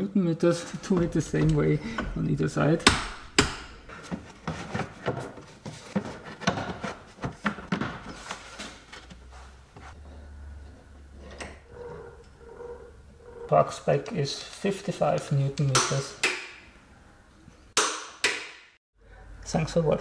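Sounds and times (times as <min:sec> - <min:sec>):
tools and plastic parts clattering: 0:03.9 - 0:09.1.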